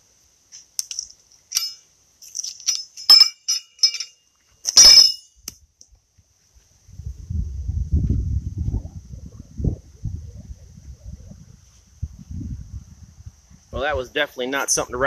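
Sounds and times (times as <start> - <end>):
metal horseshoes clinking: 0.6 - 5.5
low rumble: 6.9 - 13.6.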